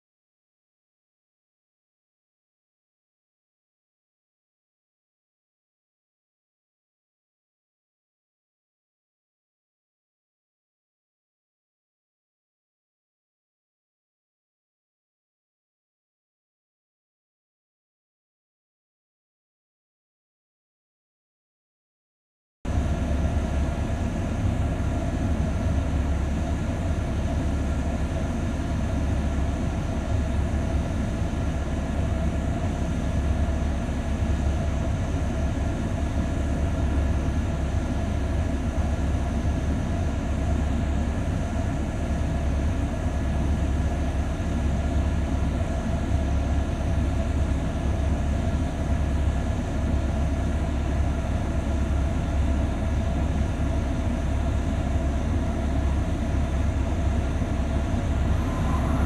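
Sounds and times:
heavy vehicle engine droning: 0:22.7 - 0:59.0.

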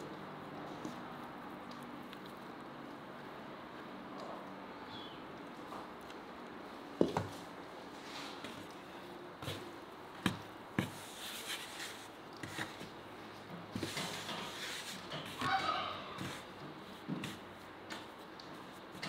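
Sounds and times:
quiet rubbing and shuffling: 0:06.6 - 0:09.9, 0:10.7 - 0:19.0.

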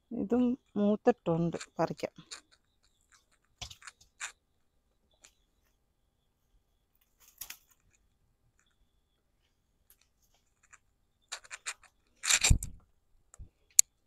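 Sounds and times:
snipping and rustling: 0:01.5 - 0:04.4, 0:07.0 - 0:08.8, 0:09.8 - 0:12.8.

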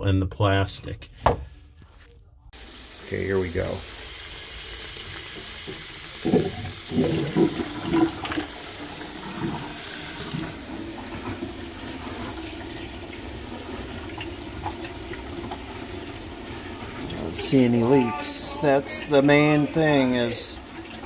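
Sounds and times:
drain gurgling: 0:02.6 - 0:21.0
water rushing down drain: 0:02.6 - 0:21.0
tap running into basin: 0:04.1 - 0:17.3.

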